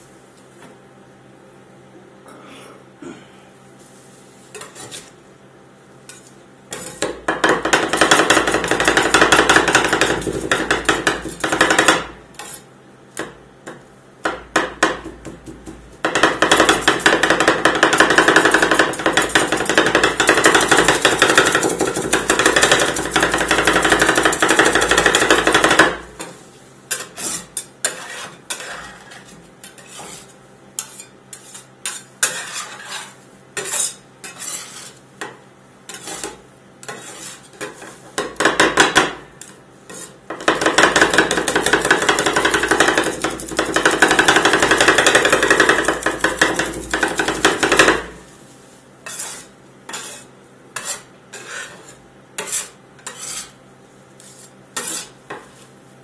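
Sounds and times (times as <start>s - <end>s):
metal scrapers chopping on steel plate: 6.7s - 12.7s, 16.0s - 35.0s, 35.9s - 48.2s, 49.0s - 53.6s, 54.2s - 55.5s.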